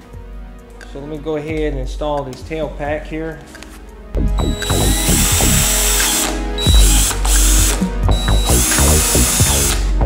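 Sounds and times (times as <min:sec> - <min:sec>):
cordless drill running: 0:04.4 - 0:09.9.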